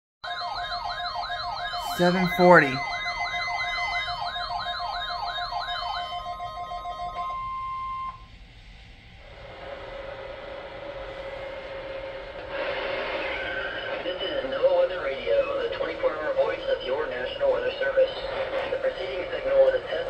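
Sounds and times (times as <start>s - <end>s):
repeated alarm beeps: 0.7s - 6.4s
steady alert tone: 1.8s - 2.8s.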